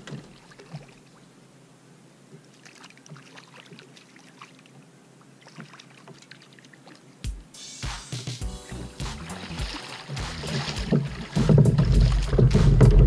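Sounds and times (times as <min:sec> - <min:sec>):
fish splashing in water: 0:02.5 - 0:04.8, 0:05.4 - 0:07.0, 0:09.1 - 0:13.0.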